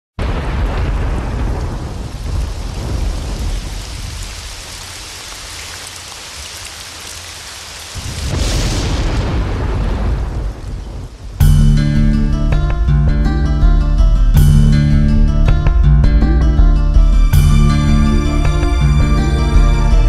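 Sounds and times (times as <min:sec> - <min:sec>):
deep rolling thunder: 0:00.2 - 0:04.4, 0:08.0 - 0:13.0
steady rain: 0:00.2 - 0:11.5, 0:17.1 - 0:20.0.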